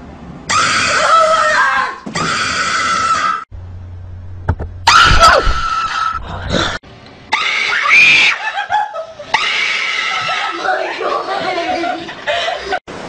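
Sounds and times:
children screaming: 0.5 - 3.5, 4.9 - 6.3, 7.3 - 12.1.

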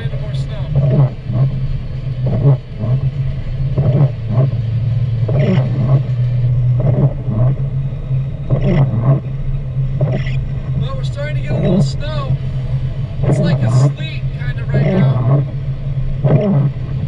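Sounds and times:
car engine and road drone: 0.0 - 17.0
windshield wipers swishing: 0.0 - 17.0.

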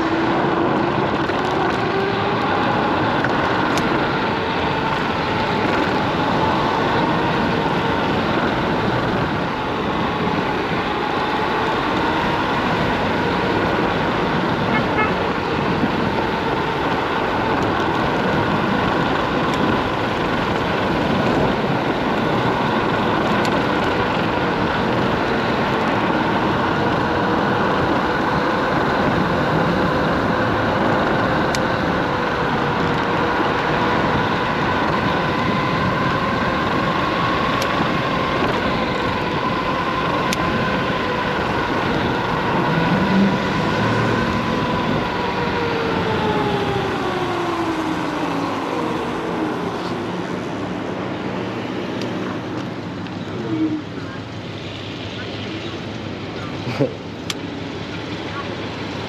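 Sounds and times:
wind rush: 0.0 - 56.3
electric scooter motor whine: 0.0 - 59.0
road noise: 0.0 - 59.0.

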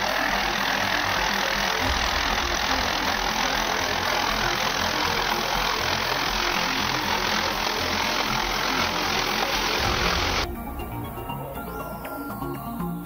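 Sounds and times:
wood chipper running: 0.0 - 12.1.

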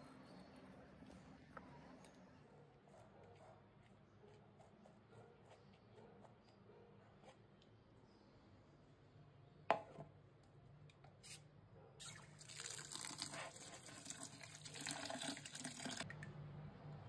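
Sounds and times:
tap water running and splashing: 12.2 - 16.1.

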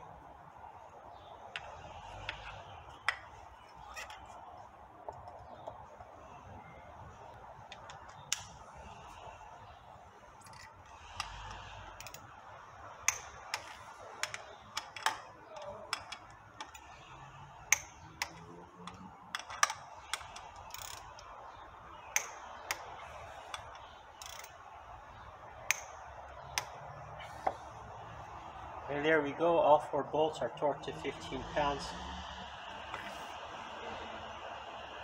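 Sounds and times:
wrench clicking metallically: 11.9 - 12.3, 17.7 - 21.3, 22.1 - 22.9, 23.5 - 24.6.

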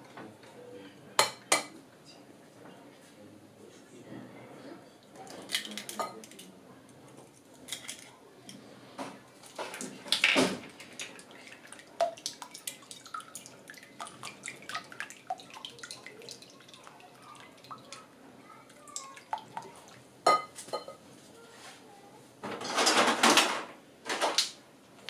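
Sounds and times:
liquid splashing: 9.6 - 20.1.

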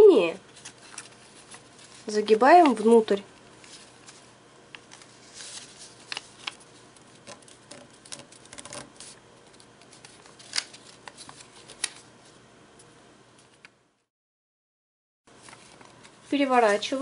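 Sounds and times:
paper rustling and crackling: 0.5 - 12.4, 15.3 - 17.0
sharp paper clicks: 4.8 - 12.1.

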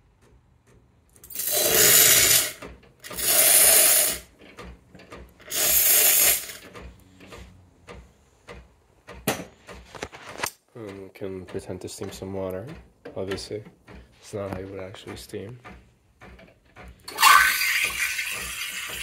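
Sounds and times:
steam wand hissing: 1.3 - 4.2, 5.5 - 6.6, 17.1 - 19.0
sharp knocks: 6.6 - 17.2.

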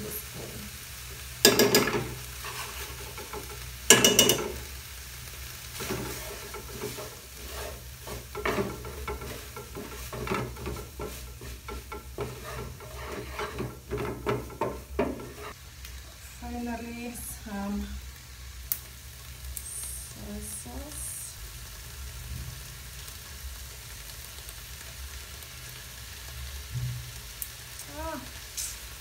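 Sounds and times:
peppers sizzling in pan: 0.0 - 29.0
metal spoon knocking on pan: 1.4 - 2.2, 3.2 - 4.7, 8.2 - 15.5
wooden spoon scraping pan: 1.5 - 4.7, 5.7 - 15.6.

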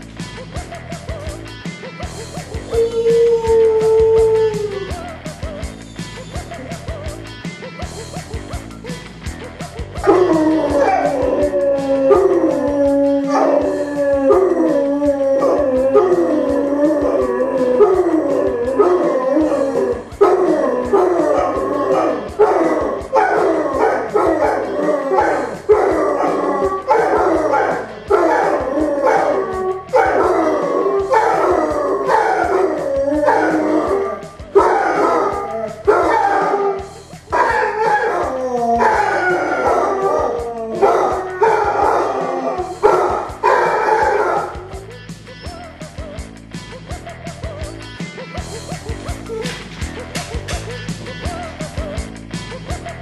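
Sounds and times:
dog howling: 2.7 - 5.1, 10.0 - 44.8.

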